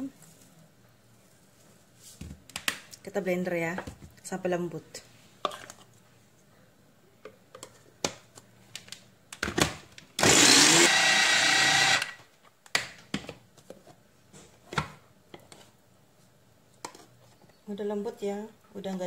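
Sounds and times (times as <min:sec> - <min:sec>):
electric mini chopper running: 0:10.2 - 0:12.2.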